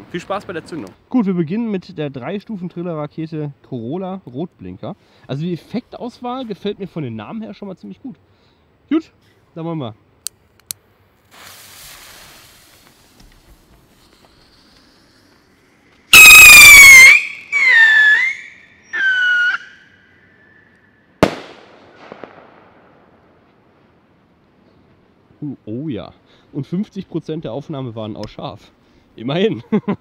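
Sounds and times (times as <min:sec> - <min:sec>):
faint crackle: 0:10.2 - 0:16.1, 0:20.0 - 0:25.2
fuse hiss: 0:11.1 - 0:16.2
whistling rocket: 0:13.8 - 0:22.9
rocket bursting with sharp bang: 0:21.2 - 0:23.5.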